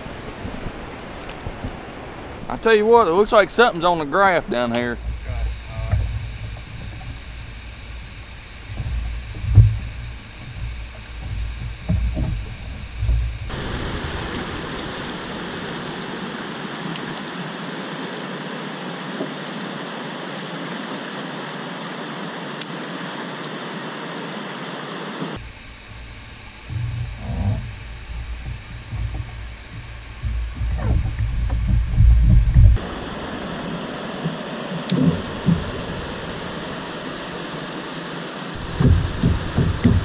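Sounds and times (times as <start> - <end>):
rushing river water: 0.0 - 40.0
thumps in water: 38.6 - 40.0.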